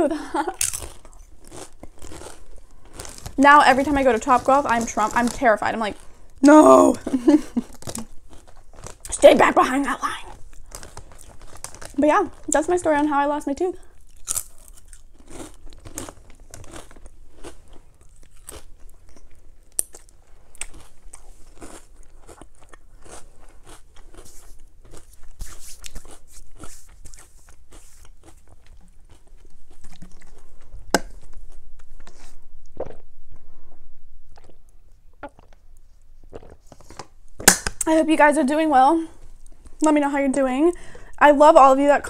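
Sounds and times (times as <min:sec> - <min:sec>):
chips crunching being chewed: 0:00.5 - 0:09.2, 0:10.2 - 0:12.7, 0:13.9 - 0:32.2.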